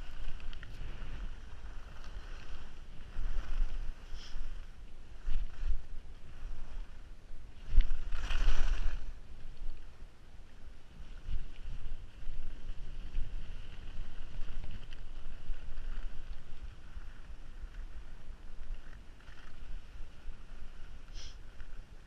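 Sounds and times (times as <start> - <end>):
skis scraping over snow: 0.0 - 9.6, 11.0 - 22.0
wind buffeting microphone: 0.0 - 22.0.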